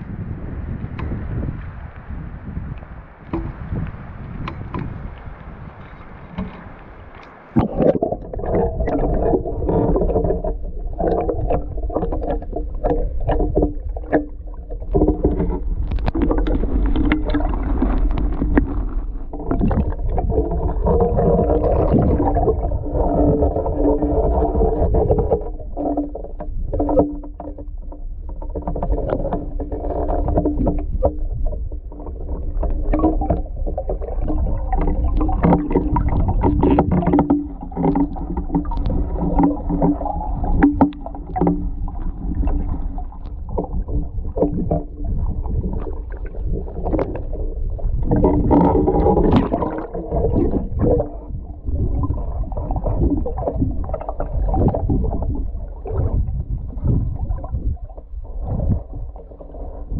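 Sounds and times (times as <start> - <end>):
knocks and splashes in water: 0.0 - 59.9
underwater water sloshing: 0.0 - 59.9.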